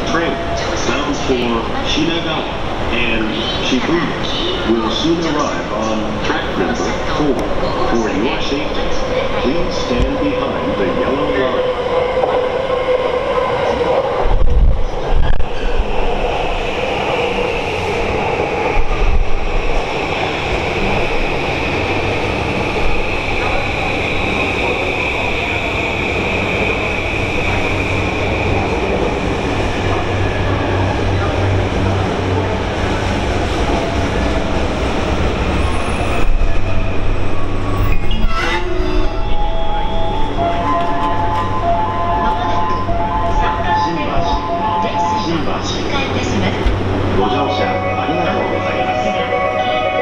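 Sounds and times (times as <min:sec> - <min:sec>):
high steady train whine: 0:00.0 - 0:50.0
train rumbling past: 0:00.0 - 0:50.0.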